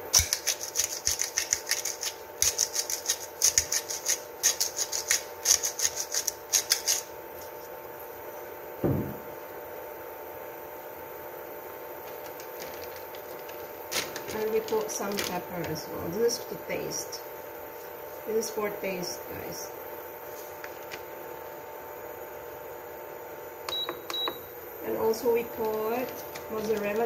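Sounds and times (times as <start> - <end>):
salt grinder cracking crystals: 0.0 - 7.1, 12.0 - 15.4
dull knock: 8.8 - 9.3.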